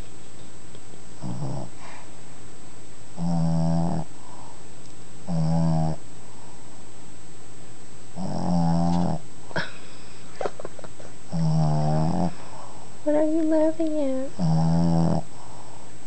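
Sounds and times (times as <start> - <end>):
puppy snoring: 1.2 - 2.0, 3.1 - 4.6, 5.2 - 6.0, 8.1 - 9.3, 11.3 - 15.6.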